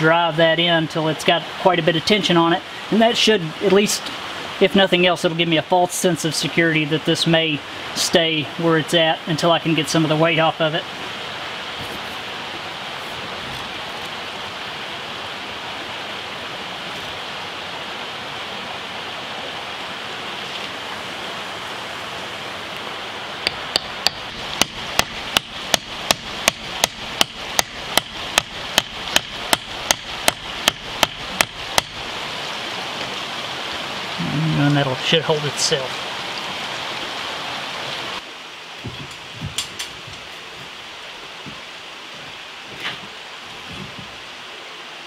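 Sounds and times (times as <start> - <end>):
creek rushing: 0.0 - 45.0
hammer driving wooden wedge: 23.5 - 32.0.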